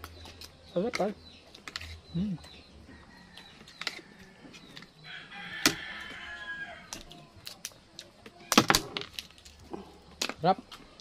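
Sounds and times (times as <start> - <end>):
rooster crowing: 5.0 - 6.9.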